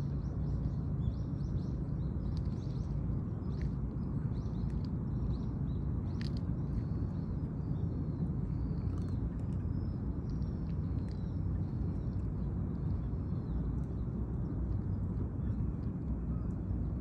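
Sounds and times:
low outdoor rumble: 0:00.0 - 0:17.0
small birds chirping: 0:00.0 - 0:17.0.

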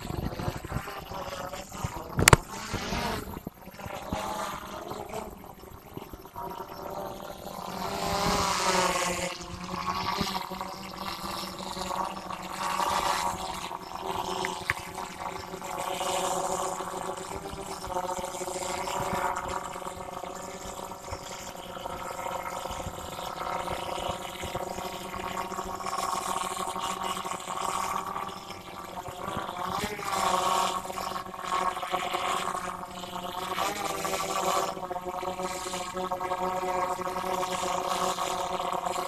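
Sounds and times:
drone propellers humming: 0:00.0 - 0:39.0.

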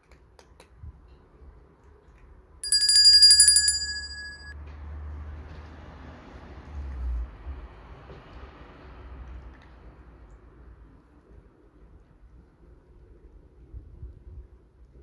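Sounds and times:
fast trill of bell strikes: 0:02.6 - 0:04.5.

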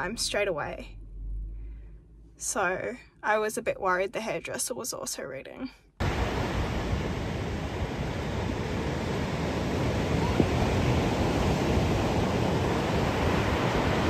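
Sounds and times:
ocean waves breaking: 0:06.0 - 0:14.0.

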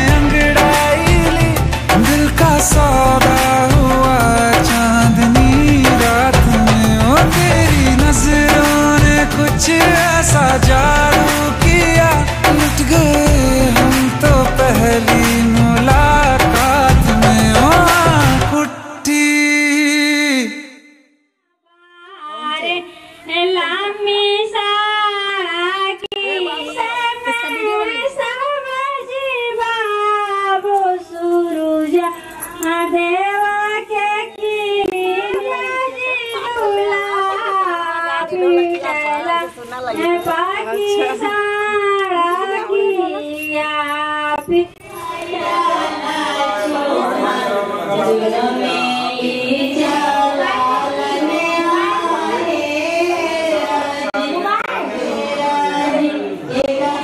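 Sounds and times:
instrumental backing: 0:00.0 - 0:19.3
singing voice: 0:00.0 - 0:21.1, 0:21.7 - 0:57.0.

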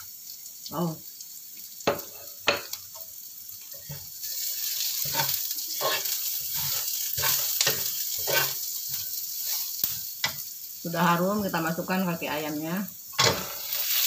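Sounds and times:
food sizzling in hot oil: 0:00.0 - 0:14.0
metal spatula scraping pan: 0:03.8 - 0:10.4, 0:13.2 - 0:14.0.

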